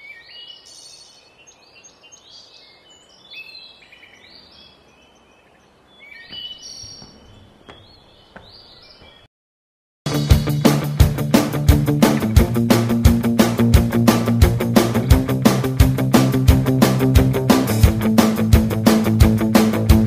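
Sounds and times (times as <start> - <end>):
birds chirping: 0.0 - 9.3.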